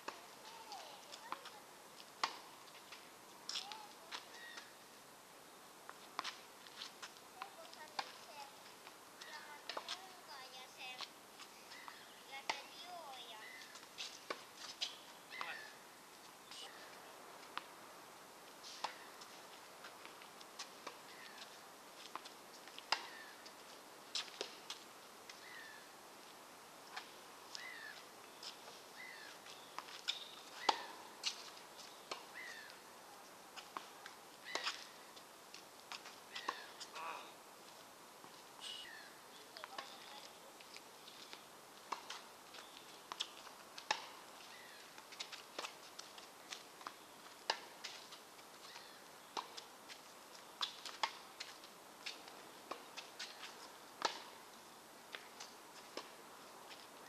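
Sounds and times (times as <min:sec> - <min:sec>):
tennis ball bouncing on court: 0:01.0 - 0:01.5, 0:07.4 - 0:08.3, 0:09.3 - 0:10.2, 0:11.8 - 0:12.9, 0:54.0 - 0:54.4
tennis ball bouncing: 0:01.1 - 0:01.5, 0:54.0 - 0:54.4
footsteps scuffing: 0:06.2 - 0:08.2
tennis ball struck by rackets: 0:54.0 - 0:54.4.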